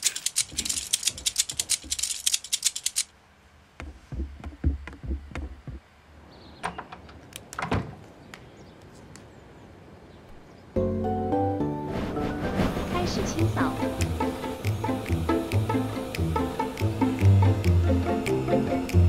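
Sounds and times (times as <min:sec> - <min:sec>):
scattered ticks: 0:00.0 - 0:03.1, 0:13.3 - 0:19.0.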